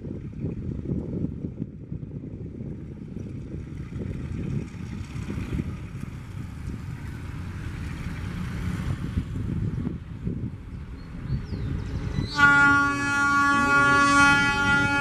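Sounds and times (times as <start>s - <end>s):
diesel locomotive engine rumble: 0.0s - 15.0s
wind on microphone: 0.0s - 15.0s.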